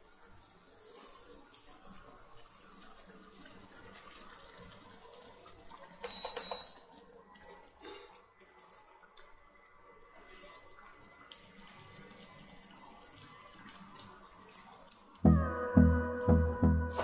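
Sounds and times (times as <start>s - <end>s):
gravy simmering in a pan: 0.0s - 15.3s
soft ticks and plops: 1.5s - 9.9s
cooktop electronic beep: 6.0s - 6.9s.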